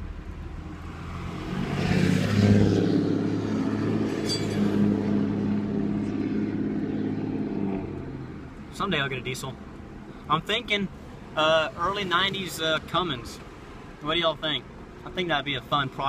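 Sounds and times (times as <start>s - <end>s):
truck engine accelerating: 0.0s - 8.8s.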